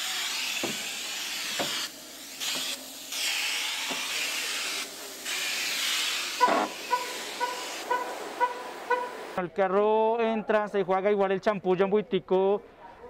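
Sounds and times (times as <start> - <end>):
spray gun hissing: 0.0 - 9.4.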